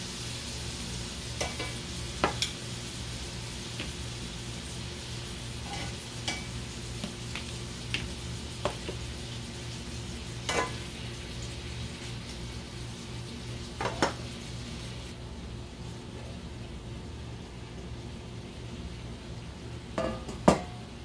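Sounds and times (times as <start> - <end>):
chicken sizzling in skillet: 0.0 - 15.2.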